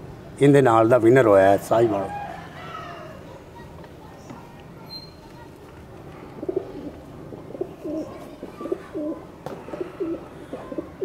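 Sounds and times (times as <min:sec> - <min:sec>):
pigeon cooing: 0:06.2 - 0:11.0.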